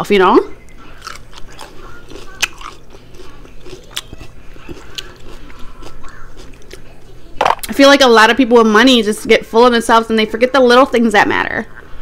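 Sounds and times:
person chewing food: 0.7 - 7.4.

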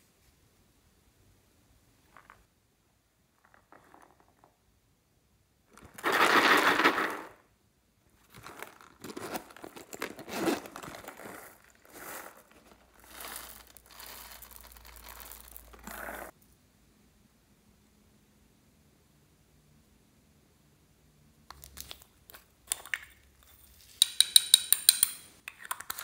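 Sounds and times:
vinyl pouch crinkling and rubbing: 8.2 - 16.3.

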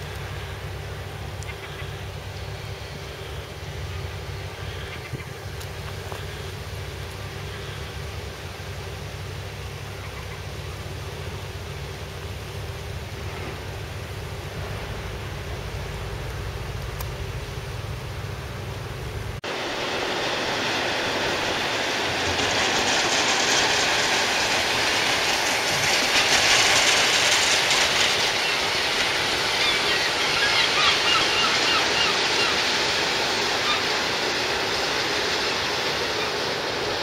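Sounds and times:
water rushing down a creek: 19.3 - 37.0.

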